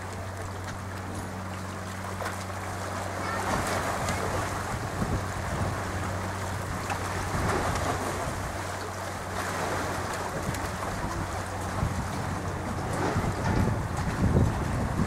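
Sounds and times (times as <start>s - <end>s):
sea washing on rocky shore: 0.0s - 15.0s
steady low hum: 0.0s - 15.0s
wind buffeting microphone: 3.2s - 15.0s.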